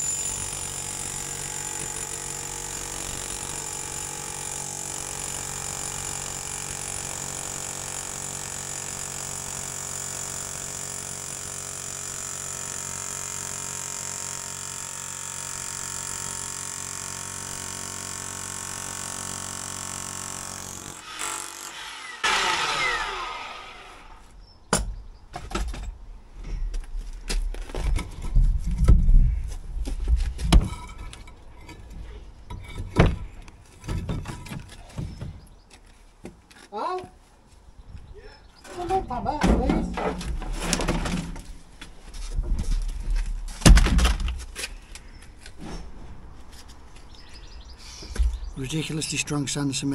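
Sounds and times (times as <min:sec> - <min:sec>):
bricks dropped with heavy thuds: 0:42.3 - 0:44.6.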